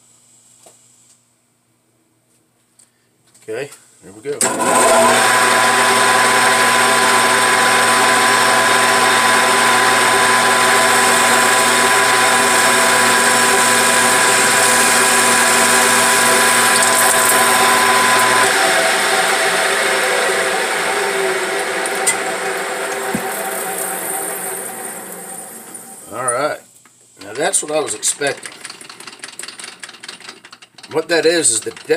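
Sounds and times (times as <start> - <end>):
machine hum: 4.4 - 26.5
metal lathe whine: 4.4 - 26.6.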